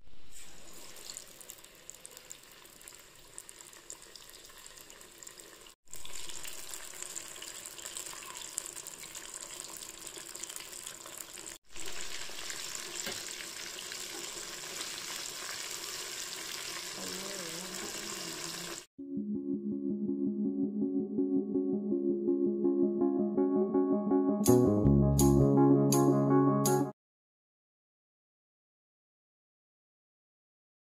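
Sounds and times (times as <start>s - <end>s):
fish deep-frying in oil: 0.1s - 18.9s.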